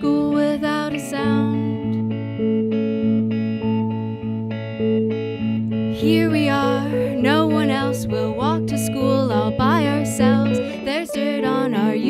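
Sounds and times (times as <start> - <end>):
woman singing: 0.0 - 2.1, 5.9 - 12.0
electric guitars picking chords: 0.0 - 12.0.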